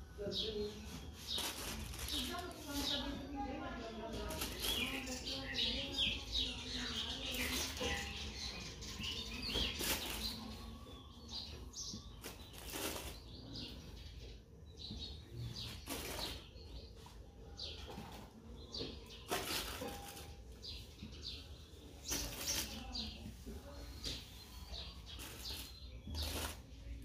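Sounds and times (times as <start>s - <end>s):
birds chirping: 0.0s - 27.0s
aluminium foil crinkling: 1.3s - 3.0s, 4.2s - 5.1s, 12.1s - 13.4s, 19.2s - 20.5s.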